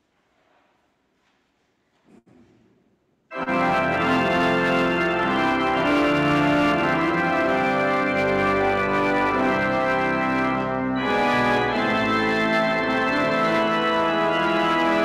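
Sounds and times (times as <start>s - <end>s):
pipe organ chords: 3.3s - 15.0s.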